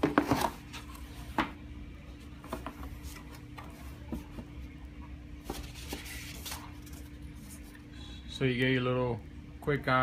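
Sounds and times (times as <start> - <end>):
faint steady hum: 0.0 - 10.0
hands handling cardboard and papers: 5.4 - 7.7.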